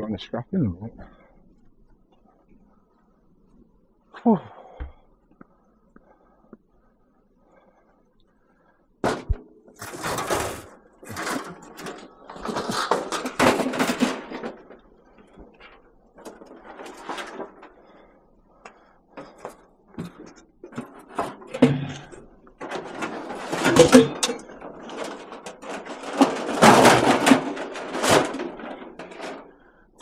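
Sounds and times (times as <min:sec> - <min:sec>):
objects clattering and scraping: 0:09.0 - 0:30.0.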